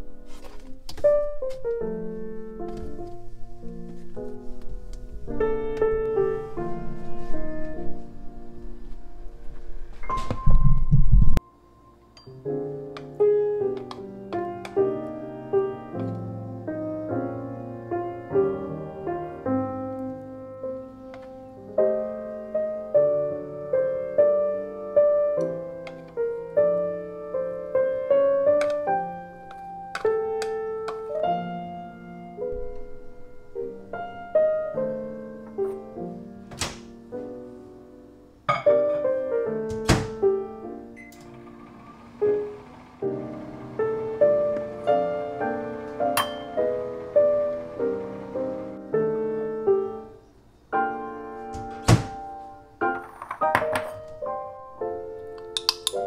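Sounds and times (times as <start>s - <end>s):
slow piano melody: 0.0s - 56.0s.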